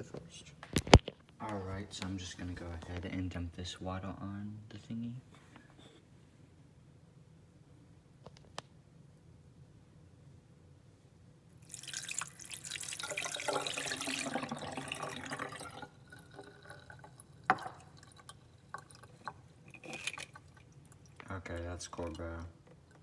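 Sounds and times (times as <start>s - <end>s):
water splashing: 11.6s - 22.4s
water dripping: 11.6s - 23.0s.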